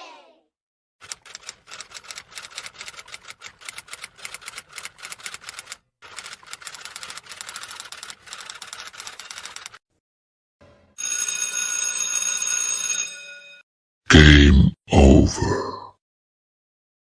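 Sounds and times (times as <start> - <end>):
rapid even clicking: 1.0 - 9.8.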